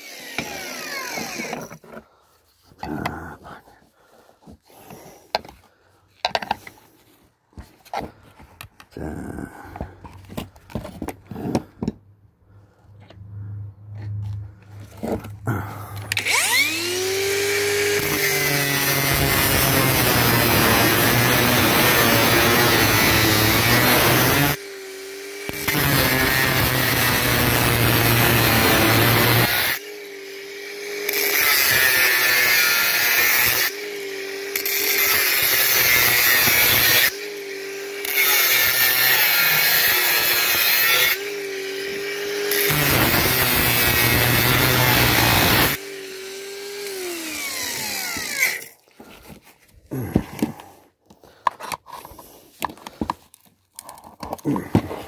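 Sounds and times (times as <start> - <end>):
grinder winding down: 0.0 - 1.8, 14.8 - 48.8
angle grinder cutting metal: 0.0 - 1.9, 14.8 - 48.9.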